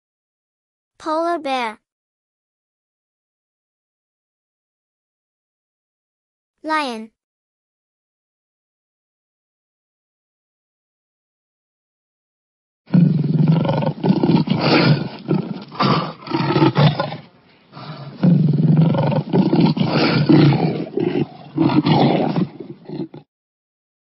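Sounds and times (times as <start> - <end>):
lion roaring: 12.9 - 17.2, 17.8 - 23.2.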